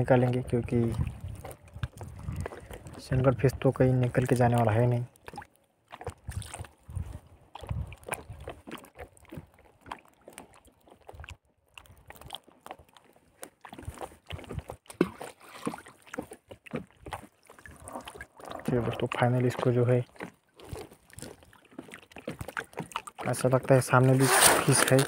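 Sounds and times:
water sloshing and splashing: 0:00.0 - 0:25.0.

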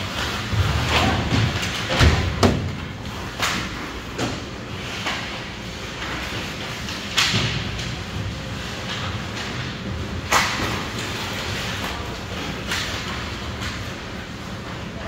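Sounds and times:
hockey sticks and puck striking: 0:00.0 - 0:14.0.

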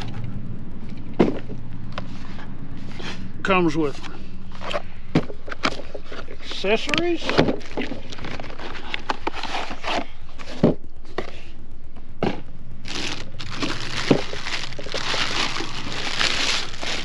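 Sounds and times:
plastic bag crinkling: 0:12.8 - 0:17.0.

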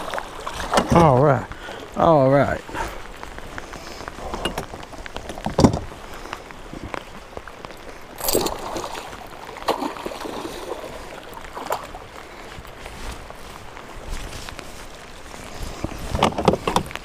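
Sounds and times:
heavy rain on a lake: 0:00.0 - 0:17.0
water splash: 0:08.2 - 0:12.1.

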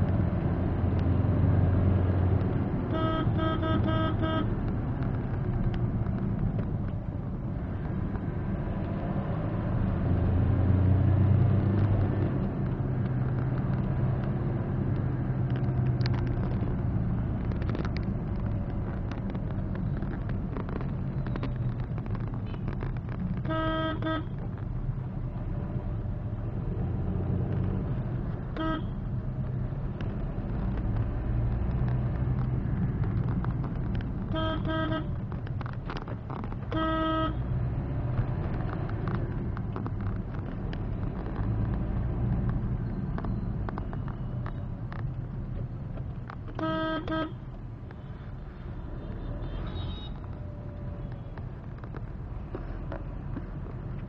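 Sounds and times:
car engine and road rumble: 0:00.0 - 0:54.0
car horn beeps: 0:02.9 - 0:04.6, 0:23.5 - 0:24.4, 0:28.6 - 0:29.0, 0:34.3 - 0:35.1, 0:36.7 - 0:37.4, 0:46.5 - 0:47.4, 0:49.1 - 0:50.2.

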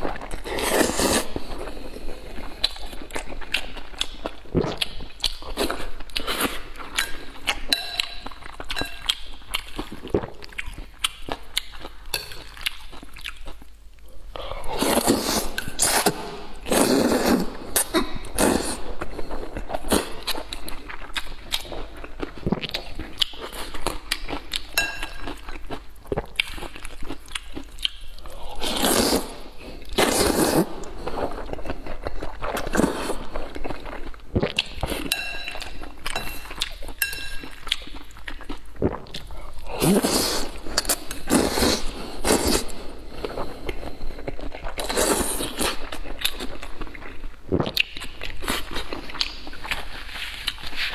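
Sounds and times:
man chewing and slurping noodles: 0:00.0 - 0:50.9.

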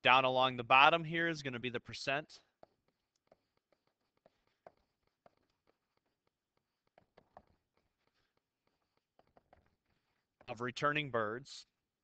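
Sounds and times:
stylus tapping on tablet screen: 0:02.4 - 0:10.6.

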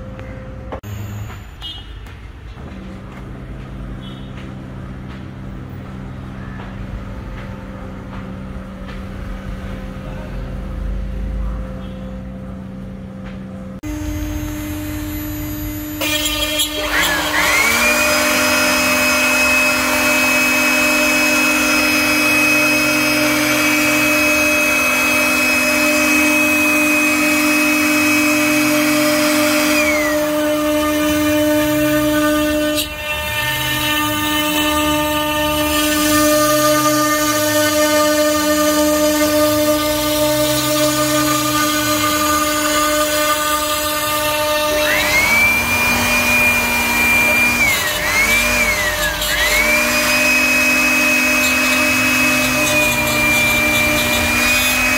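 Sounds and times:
power tool motor whining: 0:13.8 - 0:54.9.

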